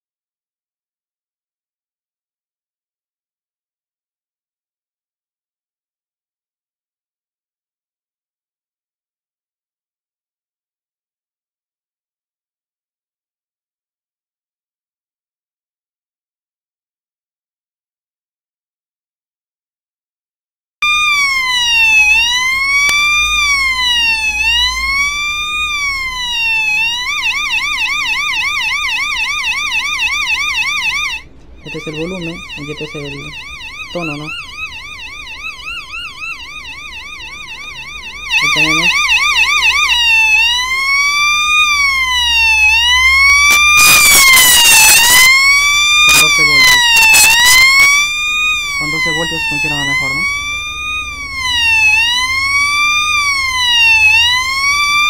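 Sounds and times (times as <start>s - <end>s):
electronic siren through speaker: 20.8s - 55.0s
rough crackling: 43.3s - 48.8s.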